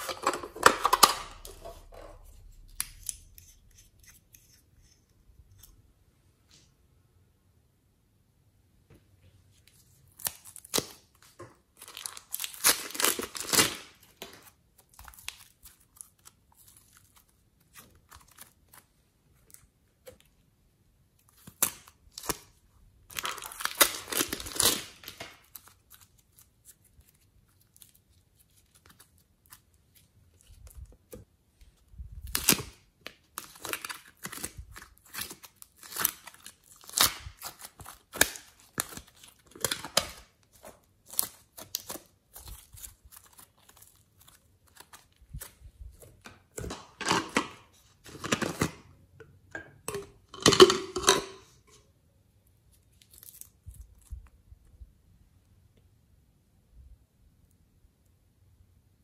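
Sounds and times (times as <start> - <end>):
plastic bags crinkling: 10.6 - 17.3, 23.1 - 26.4.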